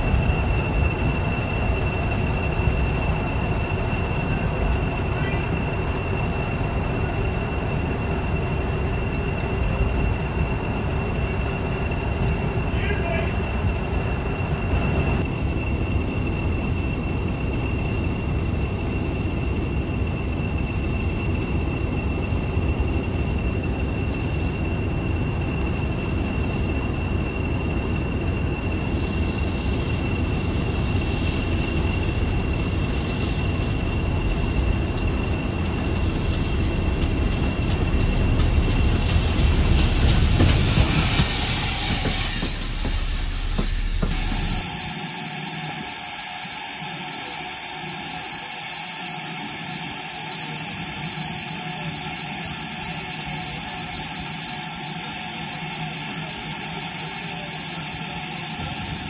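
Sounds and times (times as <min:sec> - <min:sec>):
steam hiss: 0:00.0 - 0:59.0
steam locomotive running past: 0:00.0 - 0:59.0
thin high squeal: 0:07.0 - 0:09.9.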